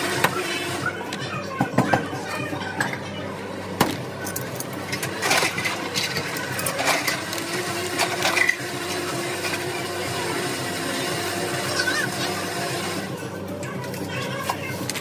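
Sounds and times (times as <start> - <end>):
kitchen items being handled: 0.0 - 10.0.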